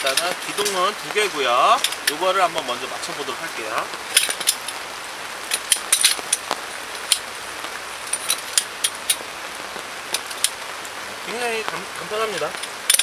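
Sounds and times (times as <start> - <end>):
metal poles clicking together: 0.0 - 0.8, 4.1 - 4.7, 12.3 - 13.0
rain hiss: 0.0 - 13.0.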